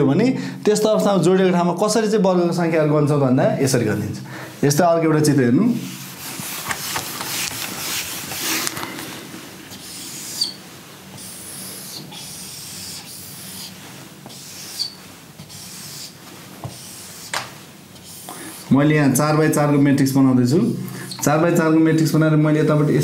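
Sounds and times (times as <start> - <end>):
eraser scrubbing a whiteboard: 5.8 - 8.8, 9.6 - 19.8
marker squeak: 9.7 - 10.6, 11.2 - 17.4
marker drawing on whiteboard: 9.7 - 19.9.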